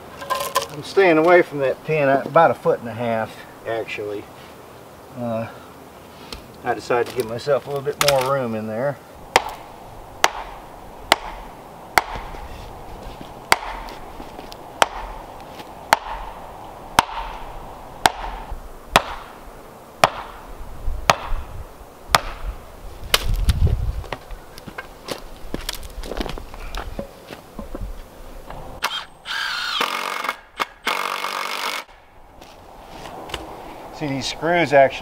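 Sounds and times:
hammer striking wooden stake: 9.3s - 12.4s, 13.5s - 15.2s, 15.9s - 16.4s, 17.0s - 17.4s, 18.0s - 19.4s, 20.0s - 20.4s, 21.1s - 21.4s, 22.1s - 22.4s.

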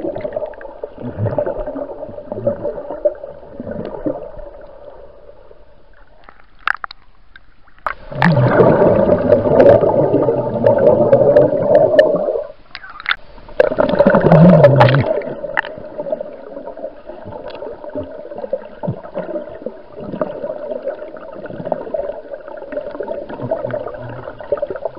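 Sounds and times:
small bubbles fizzing: 0.0s - 24.9s
underwater bubbling gurgle: 0.0s - 24.9s
water clicks: 5.9s - 8.7s, 12.0s - 15.8s, 17.3s - 17.7s.

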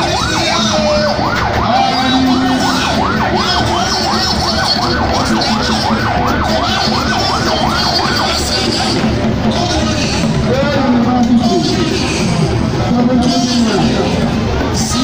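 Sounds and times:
electronic siren yelping: 0.0s - 10.5s.

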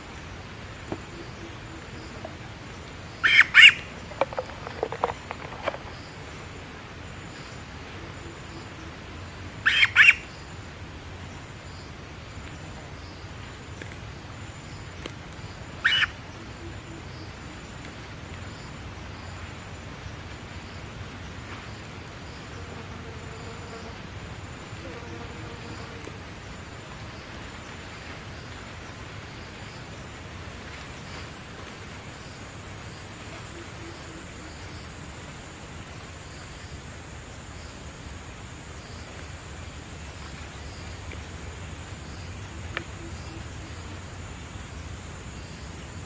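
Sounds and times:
bird squawking harshly: 3.2s - 3.8s, 9.7s - 10.2s, 15.8s - 16.1s.

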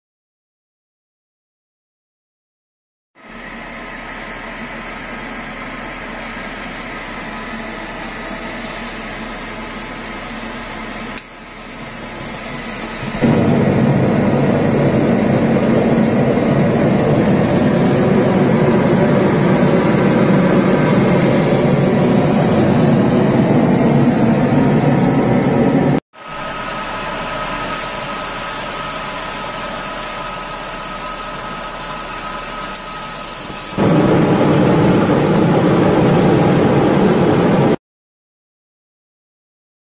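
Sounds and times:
oil burner blower fan: 3.2s - 37.8s
burner flame rushing: 11.8s - 26.0s, 32.8s - 37.8s.

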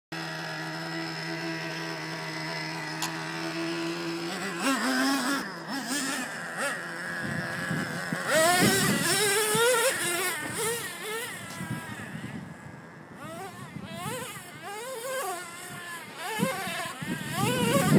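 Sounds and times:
toy truck motor revving: 0.2s - 17.9s.

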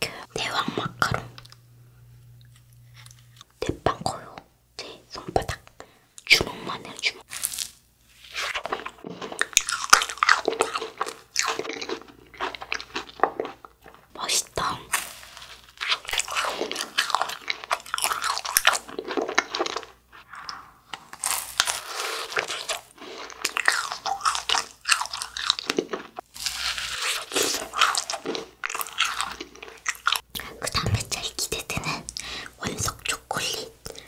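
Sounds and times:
macaron crunching while chewed: 7.2s - 34.0s.

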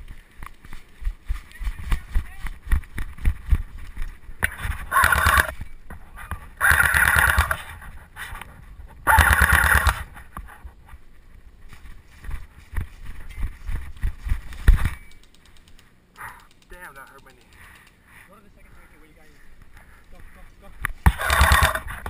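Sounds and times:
running footsteps on grass: 0.0s - 15.3s, 17.3s - 22.0s
airsoft rifle full-auto bursts: 4.9s - 5.5s, 6.6s - 7.7s, 9.1s - 10.1s, 21.0s - 22.0s.

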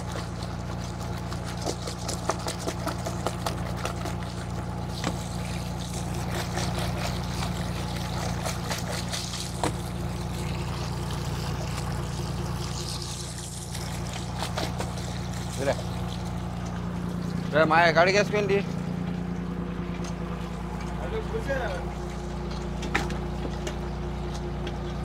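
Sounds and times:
boat engine hum: 0.0s - 25.0s
water splashing and sloshing: 0.0s - 25.0s.

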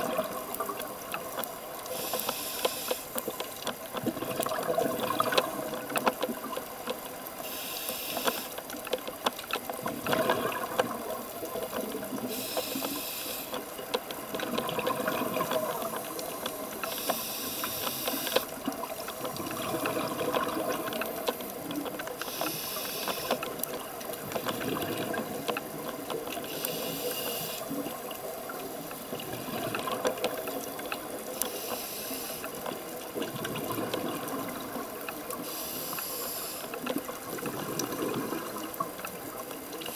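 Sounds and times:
underwater bubbling and crackling: 0.0s - 39.9s
diver inhaling through regulator: 1.9s - 3.2s, 7.4s - 8.6s, 12.2s - 13.6s, 16.9s - 18.4s, 22.2s - 23.4s, 26.5s - 27.7s, 31.4s - 32.5s, 35.4s - 36.7s.

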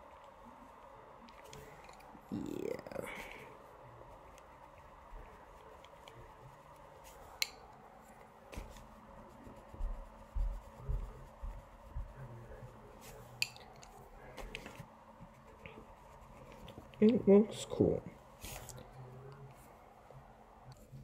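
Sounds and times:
pens and paper handled on desk: 13.0s - 14.9s.

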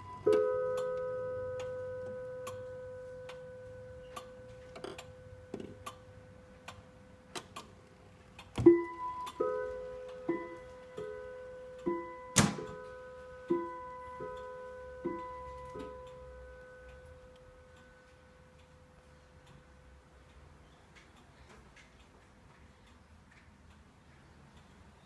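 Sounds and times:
clock striking the hour: 0.0s - 7.8s, 8.6s - 19.1s
clock ticking: 0.0s - 25.0s.

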